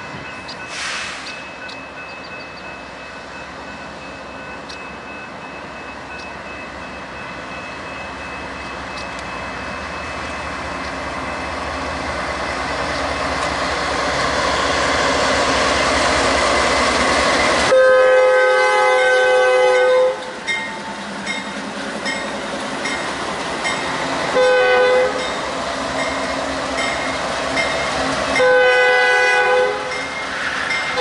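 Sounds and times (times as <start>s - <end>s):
diesel locomotives passing: 0.0s - 31.0s.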